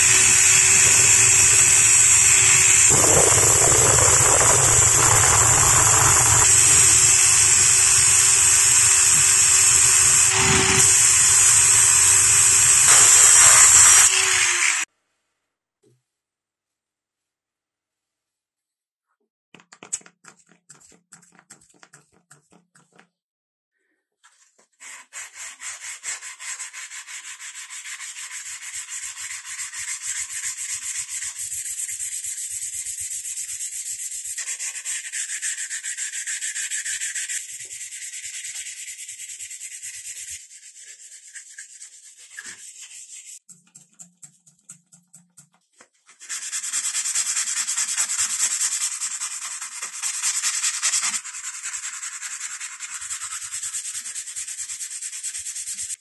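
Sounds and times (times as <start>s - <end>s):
sandpaper rasping on steel: 0.0s - 14.9s, 24.6s - 43.5s, 46.0s - 56.0s.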